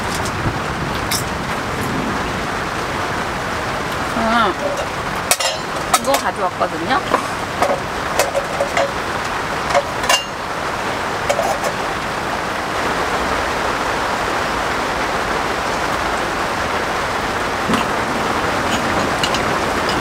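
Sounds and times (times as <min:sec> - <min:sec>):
camping gear clicks and knocks: 0:00.0 - 0:01.4, 0:04.6 - 0:06.3, 0:07.0 - 0:10.4, 0:11.2 - 0:11.9, 0:17.6 - 0:20.0
rain pattering on tent canvas: 0:00.0 - 0:20.0.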